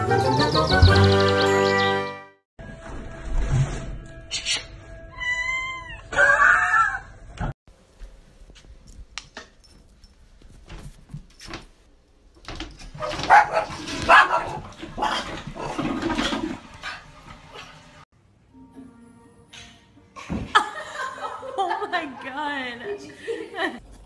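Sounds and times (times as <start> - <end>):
small dog barking and yipping: 13.0 - 15.1.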